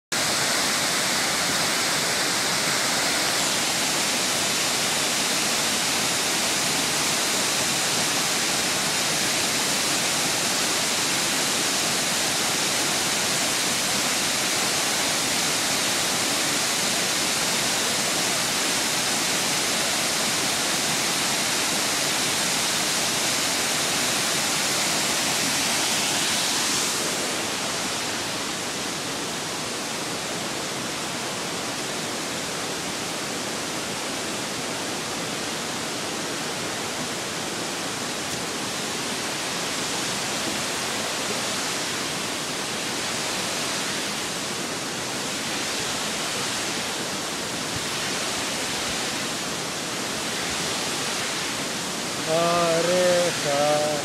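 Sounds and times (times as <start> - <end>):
waterfall rushing: 0.1 - 54.0.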